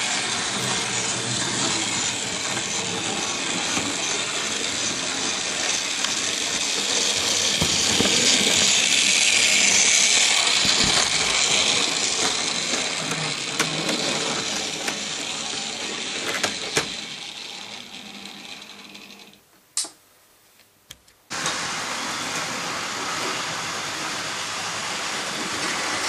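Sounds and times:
model train motor whirring: 0.0s - 19.4s.

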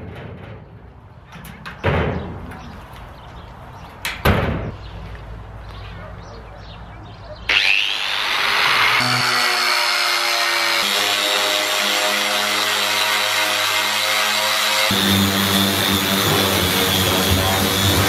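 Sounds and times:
angle grinder motor whine: 7.5s - 18.0s
sanding disc rasping on steel: 8.9s - 18.0s.

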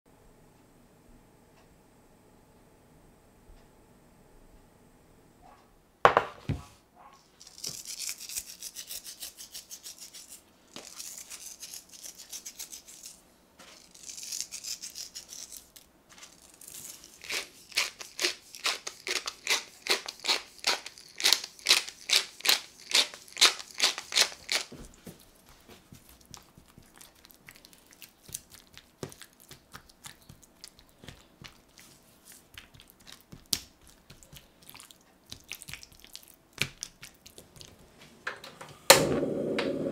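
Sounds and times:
pepper mill grinding: 7.4s - 24.8s.

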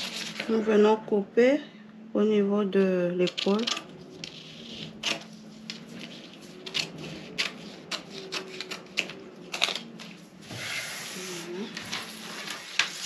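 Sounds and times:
scissors snipping paper: 6.6s - 10.2s.

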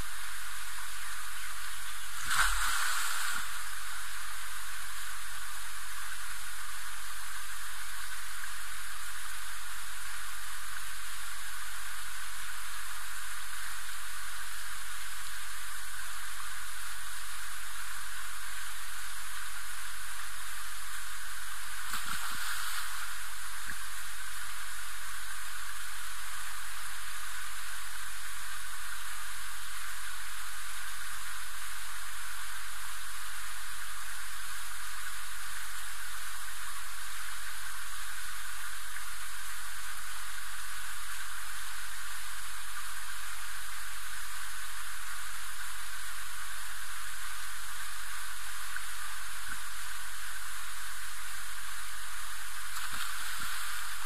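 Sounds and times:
steady hiss: 0.0s - 54.0s
splash into pool: 2.2s - 3.6s, 21.8s - 23.1s, 52.7s - 53.9s.

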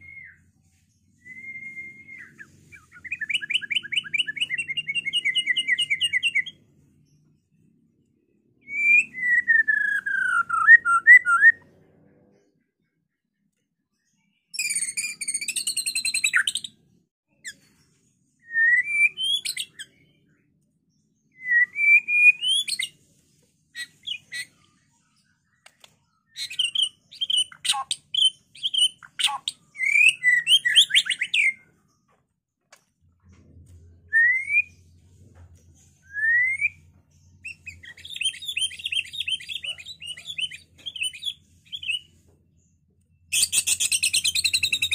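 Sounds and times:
songbird singing trills and whistles: 0.0s - 6.7s, 8.6s - 11.7s, 14.4s - 23.0s, 23.7s - 31.8s, 33.9s - 35.0s, 35.9s - 42.3s, 43.1s - 44.9s.

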